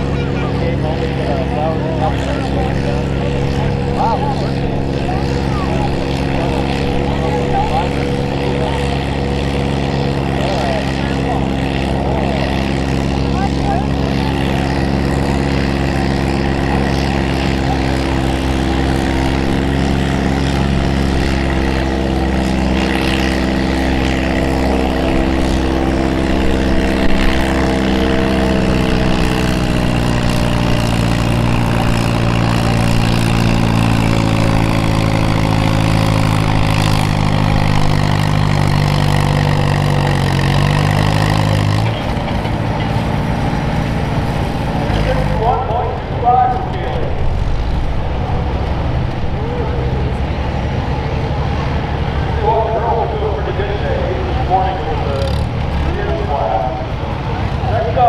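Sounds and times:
tractor engine under full load: 0.0 - 58.0.

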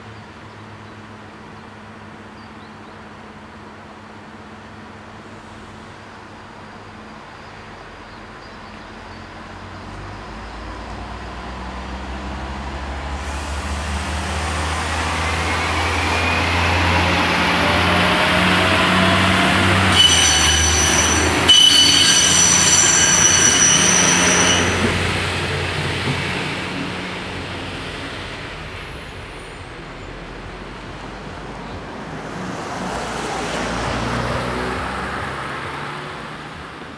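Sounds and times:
diesel railcar passing: 0.0 - 36.9
high-pitched wheel squeal: 18.8 - 25.0.

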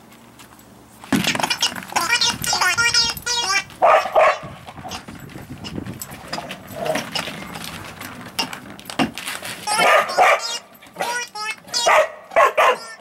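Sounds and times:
warbling toy ball sound: 1.2 - 3.8, 9.6 - 12.0
puppy barking: 2.8 - 5.0, 9.7 - 13.0.

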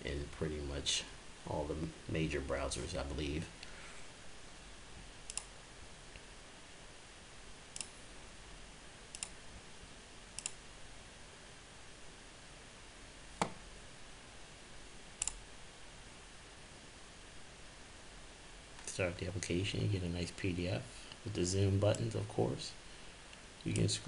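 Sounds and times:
faint hiss: 0.0 - 24.0
mouse buttons clicking: 5.3 - 5.5, 9.1 - 9.4, 10.4 - 10.6.

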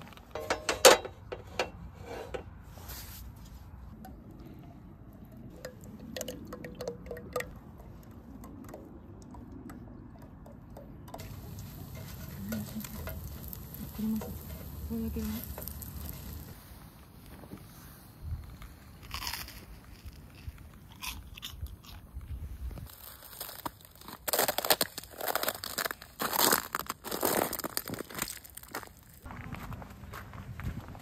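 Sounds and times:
bread sizzling in pan: 11.2 - 16.7.

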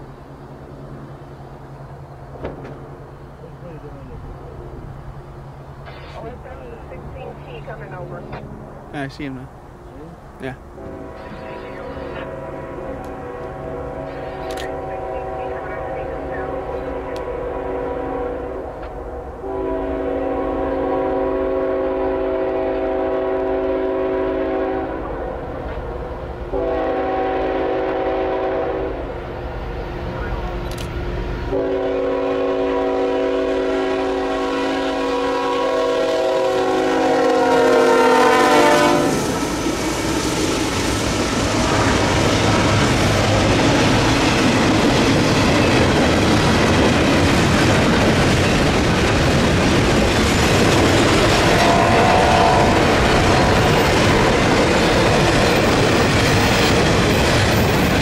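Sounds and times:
train wheel and rail noise: 0.0 - 58.0
locomotive air horn blasts: 10.8 - 18.7, 19.4 - 25.2, 26.5 - 29.0, 31.5 - 39.8, 51.3 - 53.9.

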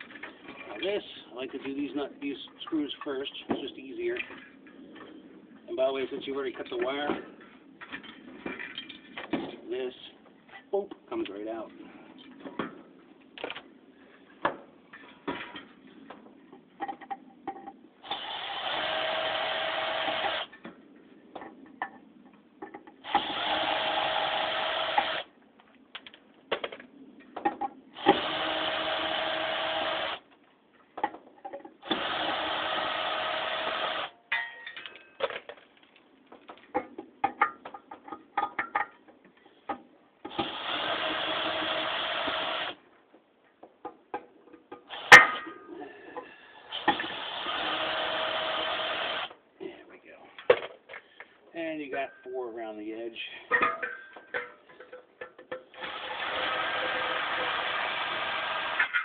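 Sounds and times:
power screwdriver running: 18.1 - 20.5, 23.1 - 25.3, 40.3 - 42.8, 46.8 - 49.3, 55.8 - 58.8.

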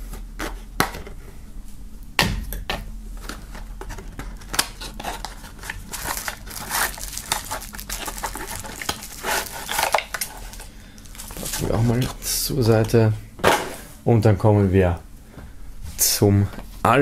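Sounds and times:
bubble wrap crinkling: 3.1 - 12.3.

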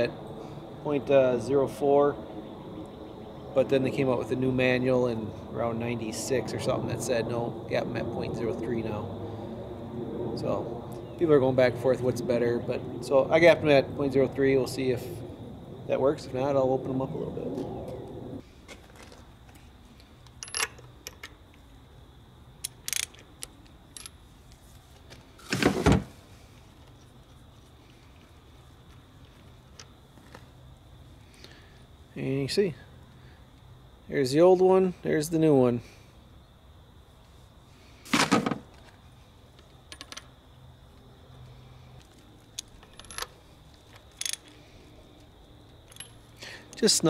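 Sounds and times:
metal tool clicks and clinks: 20.3 - 21.3, 22.6 - 24.2, 44.1 - 44.6.

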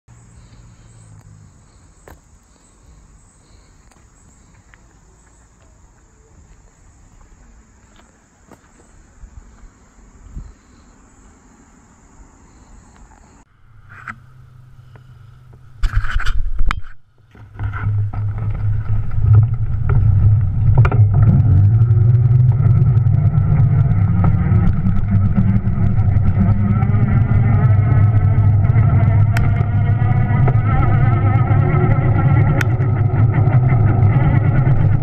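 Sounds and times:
insect chorus: 0.1 - 13.5
electric motor hum: 17.8 - 35.0
loud burst of noise: 19.6 - 35.0.

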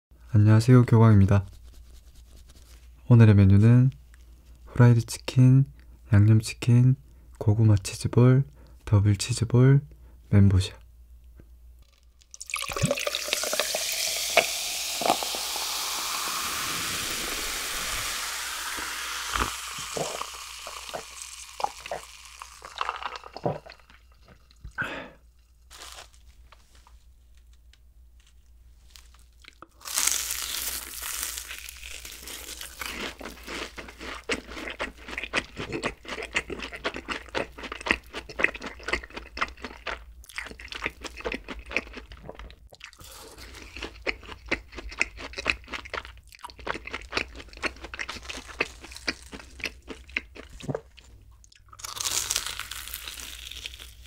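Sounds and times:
cola pouring and fizzing: 12.2 - 24.8
ice clinking: 12.3 - 24.6
crisp bite into food: 25.7 - 26.3, 29.0 - 35.9, 51.8 - 54.0
crunchy chewing: 28.9 - 54.0.

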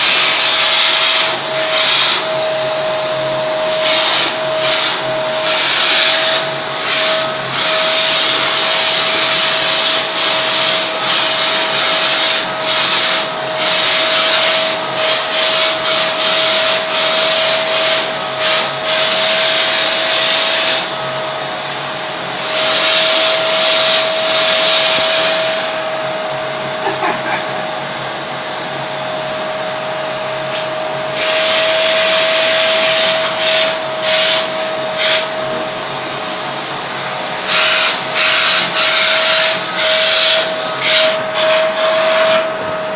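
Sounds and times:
air hissing through hose: 0.0 - 42.6
vacuum cleaner running: 0.0 - 42.9.

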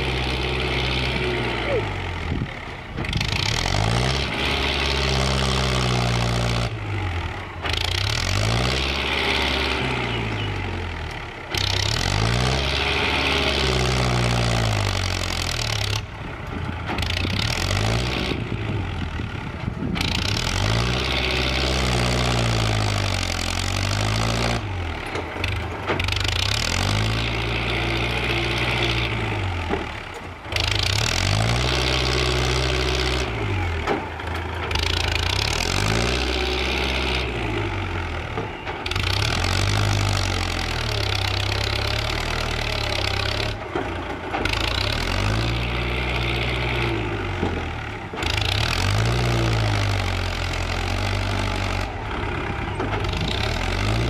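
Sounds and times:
dozer blade pushing soil: 0.0 - 54.0
tractor diesel engine running hard: 0.0 - 54.0.

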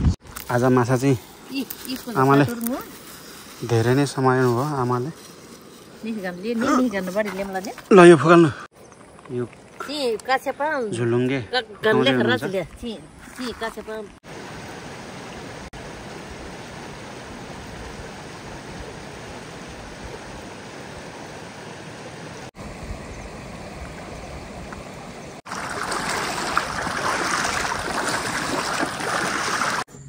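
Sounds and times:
rushing river water: 13.4 - 29.9.

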